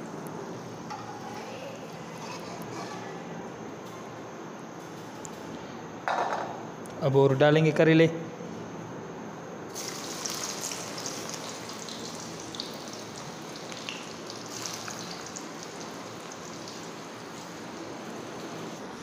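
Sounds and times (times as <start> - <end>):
vegetables deep-frying in oil: 9.7 - 19.0.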